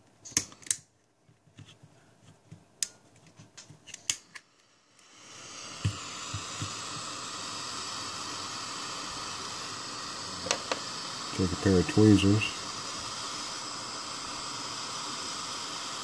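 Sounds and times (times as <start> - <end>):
gas torch hissing: 3.9 - 16.0.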